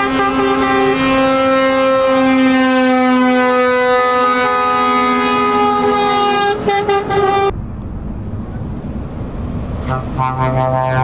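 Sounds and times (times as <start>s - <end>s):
truck air horn chord: 0.0s - 7.5s
low rumble: 7.5s - 10.7s.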